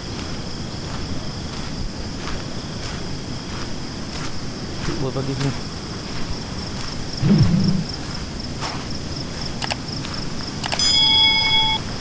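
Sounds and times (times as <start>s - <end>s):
insects droning: 0.0s - 12.0s
brief low sound: 7.2s - 8.0s
steady electronic tone: 7.2s - 8.0s.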